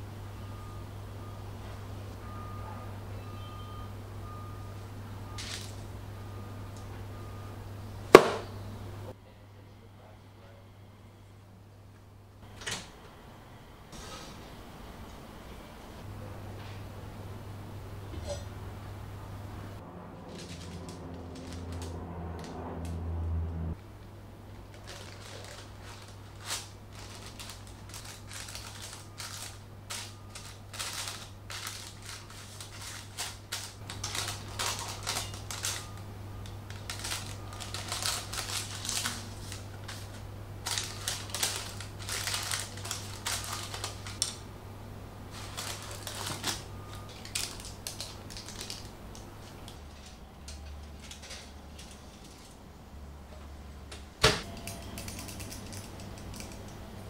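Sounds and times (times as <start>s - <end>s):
low steady hum: 0.0s - 57.0s
parchment paper crinkling: 20.2s - 22.5s, 24.4s - 44.4s, 45.3s - 52.6s.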